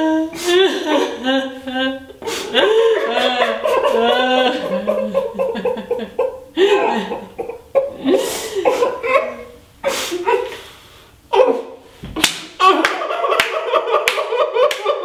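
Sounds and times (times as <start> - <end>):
person sobbing: 0.0 - 10.5
hand claps: 12.2 - 15.0.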